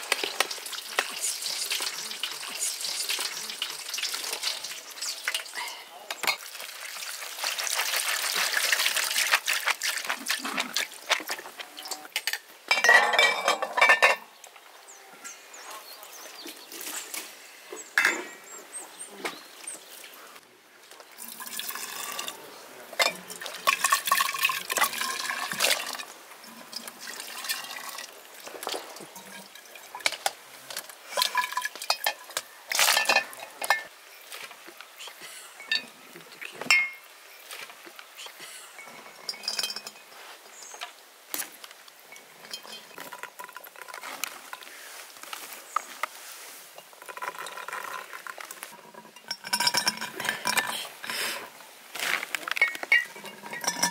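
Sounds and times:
liquid pouring and splashing: 0.0 - 5.6, 6.3 - 11.6, 21.1 - 22.4, 23.0 - 34.6
glass bottles clinking: 11.8 - 14.3, 18.0 - 18.4, 23.0 - 26.0, 31.1 - 34.0, 35.6 - 36.0, 36.6 - 37.1, 38.8 - 40.2, 42.0 - 44.6, 46.8 - 51.3, 52.5 - 53.9.

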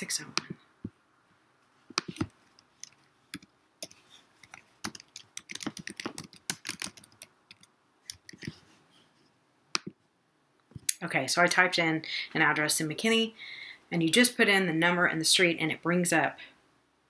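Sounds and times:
keyboard typing clicks: 2.0 - 8.5.

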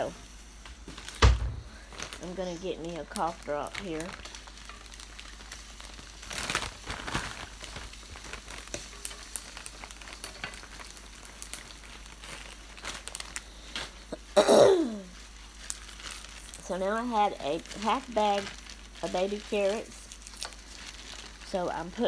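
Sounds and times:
wrapper crinkling: 0.0 - 22.0
person clearing throat: 14.1 - 15.1.

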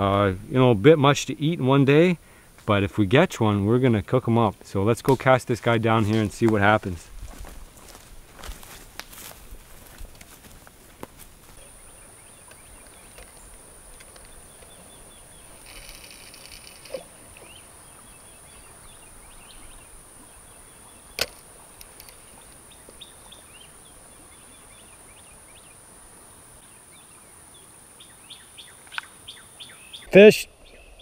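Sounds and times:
steady high hiss: 0.0 - 31.0
bird chirps: 28.0 - 31.0.

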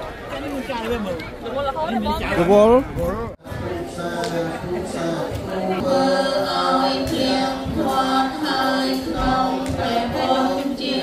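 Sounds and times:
voices singing together: 3.4 - 11.0.

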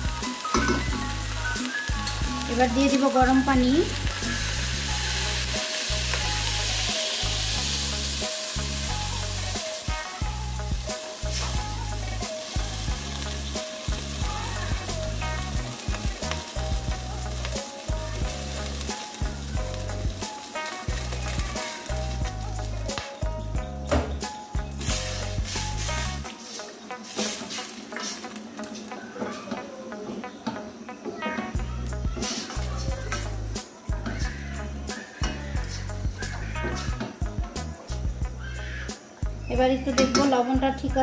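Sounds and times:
water hissing in hot pan: 0.0 - 41.0.

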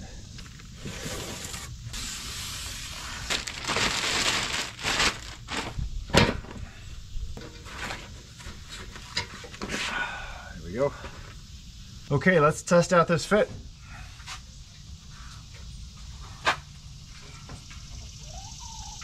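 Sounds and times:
cardboard and plastic wrap rustling: 0.4 - 6.6.

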